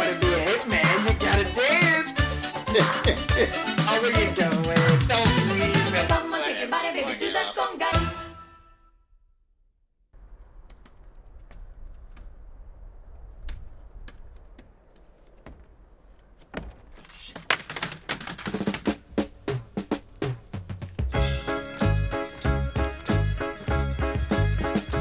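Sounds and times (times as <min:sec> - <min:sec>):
music: 0:00.0 - 0:09.0, 0:19.2 - 0:25.0
footsteps on outdoor stairs: 0:10.8 - 0:17.8.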